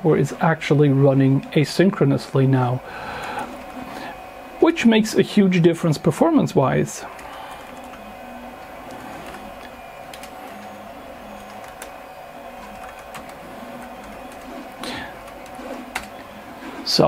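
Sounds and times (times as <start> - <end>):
steady electrical hum: 0.0 - 17.0
computer keyboard typing: 7.1 - 16.8.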